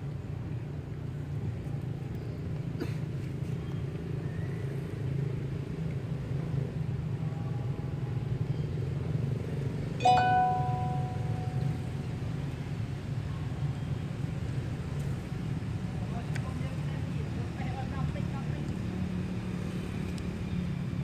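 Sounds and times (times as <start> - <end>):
held tone: 10.0 - 12.0.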